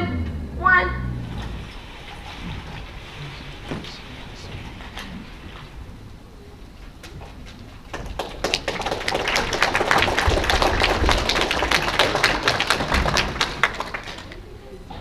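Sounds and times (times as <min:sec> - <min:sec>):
audience applauding: 0:07.8 - 0:14.5.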